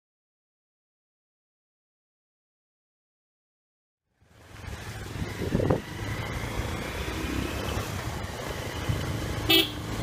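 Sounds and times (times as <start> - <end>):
motorcycle engine and tyre rumble: 4.1 - 10.0.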